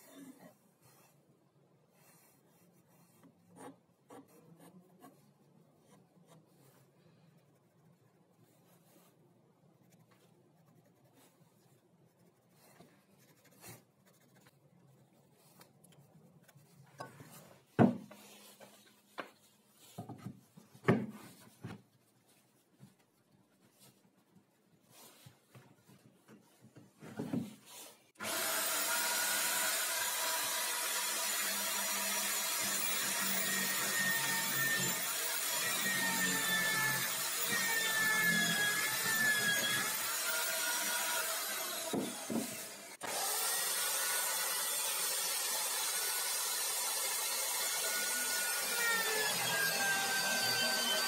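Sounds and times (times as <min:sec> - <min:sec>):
electric drill running: 0:28.2 - 0:51.0.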